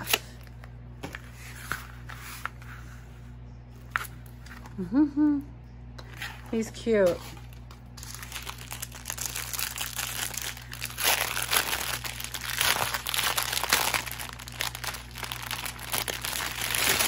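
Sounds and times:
plastic bag crinkling: 0:07.0 - 0:17.0.

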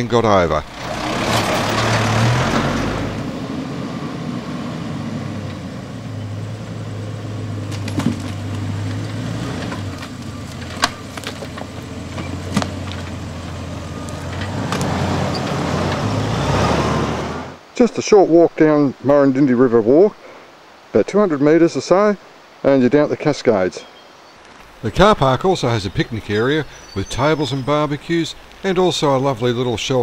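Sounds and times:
tyres rumbling on dirt: 0:00.0 - 0:17.7, 0:24.4 - 0:30.0
vehicle engine humming low: 0:00.0 - 0:17.7, 0:24.1 - 0:30.0
wood knocking and cracking: 0:07.7 - 0:13.2.

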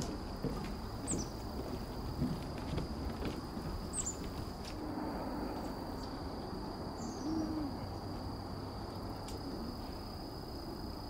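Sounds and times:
wild birds calling: 0:00.5 - 0:01.7
steady high-pitched drone: 0:04.8 - 0:08.2.

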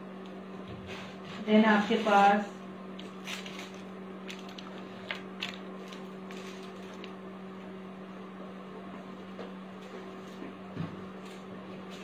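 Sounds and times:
steady low hum: 0:00.0 - 0:12.0
plastic packets crinkling and clicking: 0:03.0 - 0:07.2.

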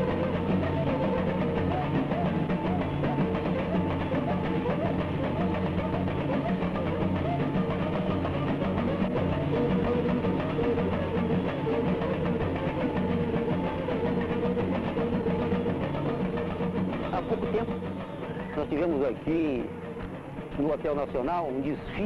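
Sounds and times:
samba drums playing: 0:00.0 - 0:22.0.

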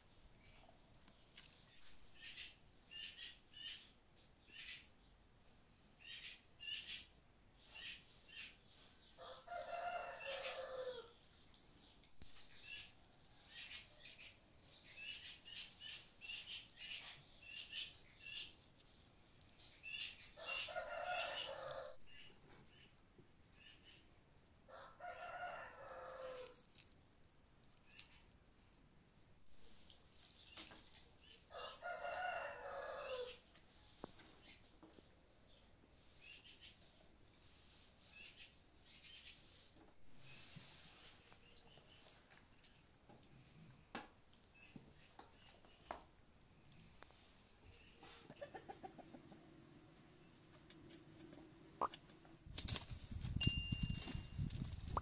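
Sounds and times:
rooster crowing: 0:09.2 - 0:11.1, 0:20.4 - 0:22.0, 0:24.7 - 0:26.6, 0:31.5 - 0:33.4.

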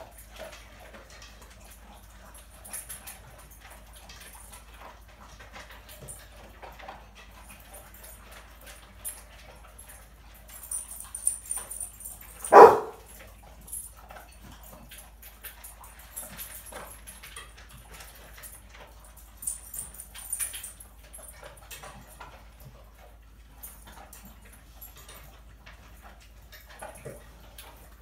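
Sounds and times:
dog barking: 0:12.4 - 0:13.1
dog whining: 0:12.4 - 0:13.1.

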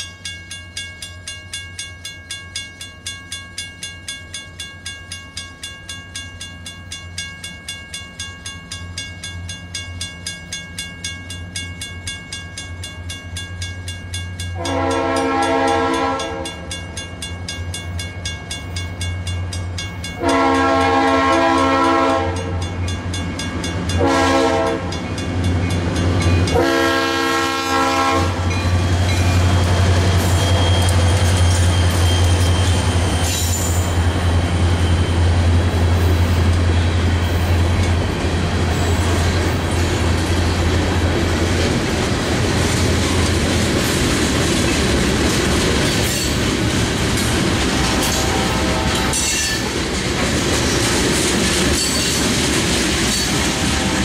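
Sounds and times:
train wheels clickety-clack: 0:08.2 - 0:54.0
locomotive horn blasts: 0:14.6 - 0:16.5, 0:20.2 - 0:22.6, 0:24.0 - 0:24.9, 0:26.5 - 0:28.5
locomotives droning: 0:19.8 - 0:54.0.

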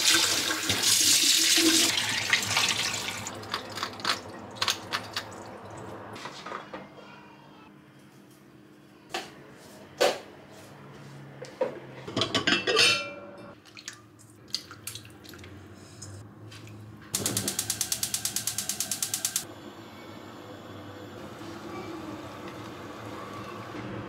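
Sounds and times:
kitchen handling knocks and clatter: 0:12.0 - 0:13.2
gas burner igniter clicking: 0:17.2 - 0:19.5.

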